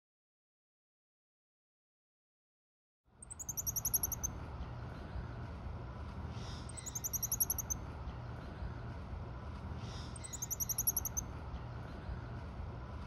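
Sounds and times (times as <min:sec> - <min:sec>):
low background noise: 0:03.1 - 0:13.0
monkey chirping calls: 0:03.2 - 0:04.3, 0:06.6 - 0:07.8, 0:10.1 - 0:11.2.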